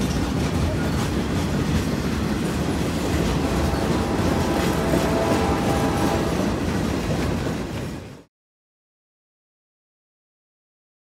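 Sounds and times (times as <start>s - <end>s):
wheels clicking over rail joints: 0.0s - 8.2s
freight train rumble: 0.0s - 8.3s.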